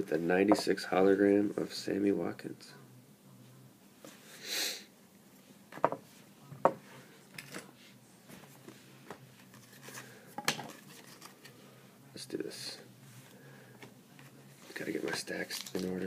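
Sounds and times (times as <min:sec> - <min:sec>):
person sniffing: 0:04.3 - 0:04.9.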